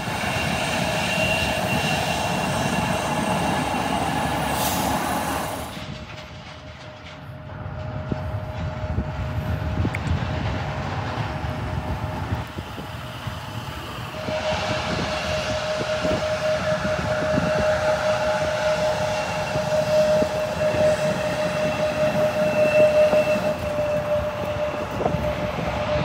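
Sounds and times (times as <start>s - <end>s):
jet engines roaring: 0.0s - 26.0s.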